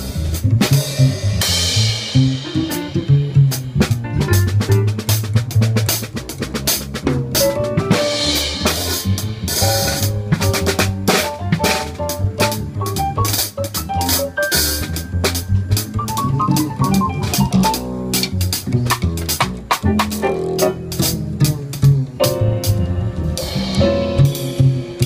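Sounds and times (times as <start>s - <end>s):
bass line: 0.0s - 25.0s
live jazz band: 0.0s - 25.0s
snare and bass drum: 0.0s - 25.0s.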